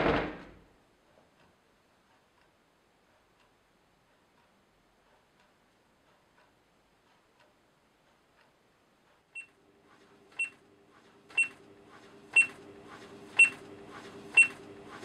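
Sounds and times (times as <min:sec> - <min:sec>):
clock ticking: 0:01.0 - 0:09.6.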